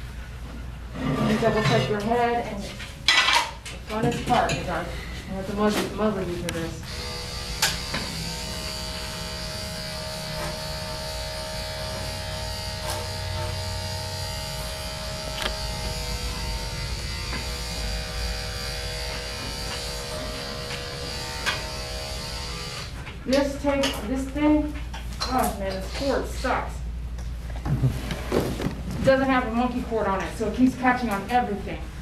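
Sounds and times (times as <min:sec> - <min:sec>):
electric clippers humming: 0:06.5 - 0:23.0.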